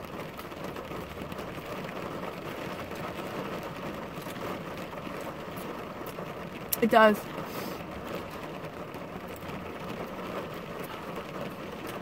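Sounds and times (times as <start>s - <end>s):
faint ticks of raindrops: 0.0s - 12.0s
rain on car roof: 0.0s - 12.0s.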